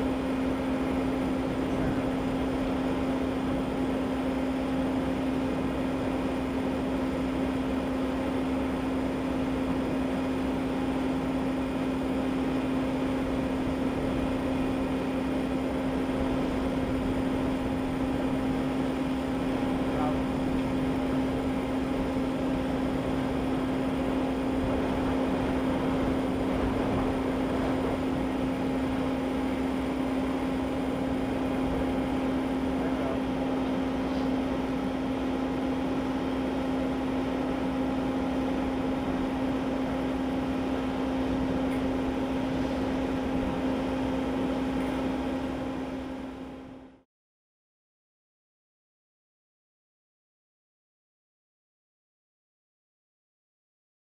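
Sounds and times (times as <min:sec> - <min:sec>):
steady machine hum: 0:00.0 - 0:47.0
broad rushing noise: 0:16.2 - 0:35.0.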